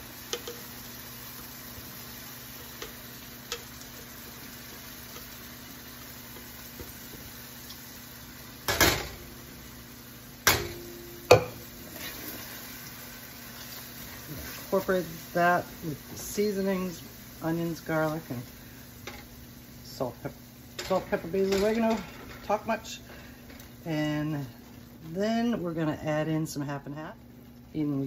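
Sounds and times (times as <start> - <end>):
faint sizzle in a pan: 0.0 - 28.0
sharp knocks on metal pan: 10.4 - 11.6.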